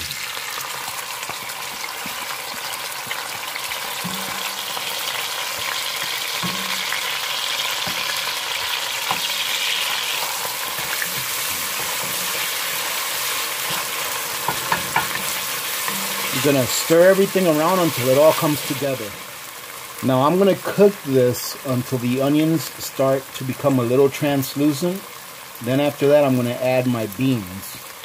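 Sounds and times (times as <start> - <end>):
food sizzling in hot oil: 0.0 - 28.0
wooden spoon stirring: 1.7 - 18.8.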